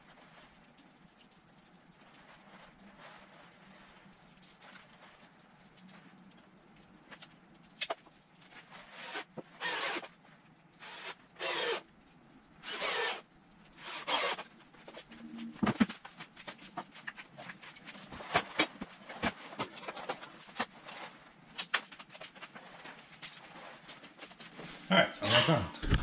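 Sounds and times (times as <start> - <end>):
rasping scrapes on wood: 8.9 - 10.0, 10.8 - 11.8, 12.6 - 13.2, 13.8 - 14.4.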